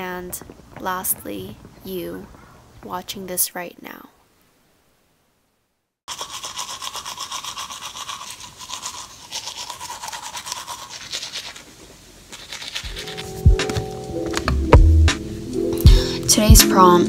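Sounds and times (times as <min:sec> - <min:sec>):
toothbrush scrubbing teeth: 0:06.1 - 0:13.6
music: 0:12.9 - 0:17.0.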